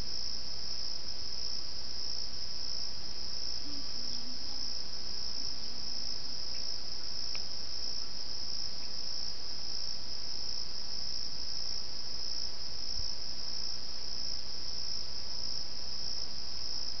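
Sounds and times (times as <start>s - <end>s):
faint low wavering tone: 0.0s - 10.1s
cricket chorus trilling: 0.0s - 17.0s
faint low hum: 0.0s - 17.0s.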